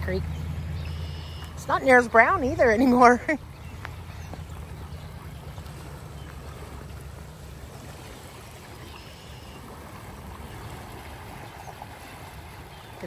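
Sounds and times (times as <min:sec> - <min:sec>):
fast-flowing river rushing: 0:00.0 - 0:13.0.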